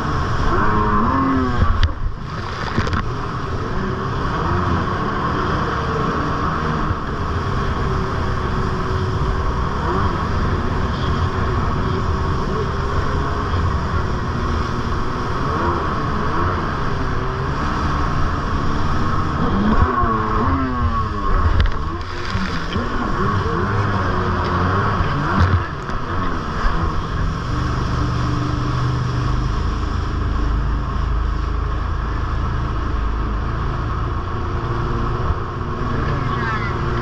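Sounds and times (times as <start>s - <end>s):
jet ski engine running: 0.0s - 37.0s
water rushing and spraying: 0.0s - 37.0s.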